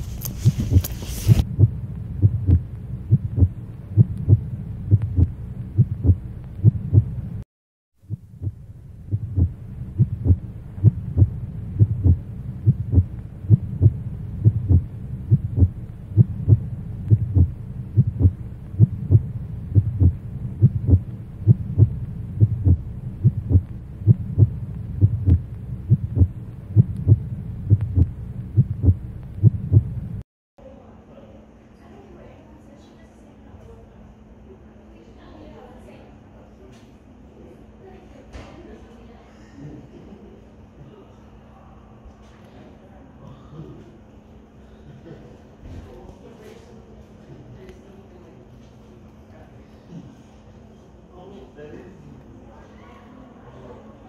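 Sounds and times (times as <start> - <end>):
deep hum: 0.0 - 7.4, 8.0 - 30.2
heartbeat thumping: 0.4 - 7.4, 8.0 - 30.2.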